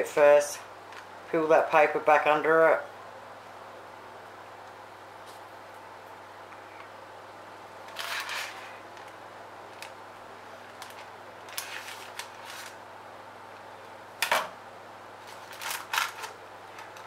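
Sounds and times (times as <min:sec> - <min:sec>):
faint steady hum: 0:00.0 - 0:17.0
baking paper rustling and crinkling: 0:10.6 - 0:12.8, 0:15.2 - 0:17.0.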